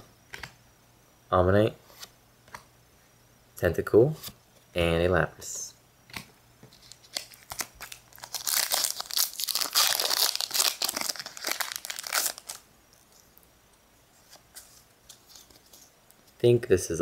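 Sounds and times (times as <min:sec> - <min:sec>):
foil wrapper crinkling and tearing: 0:06.8 - 0:12.6.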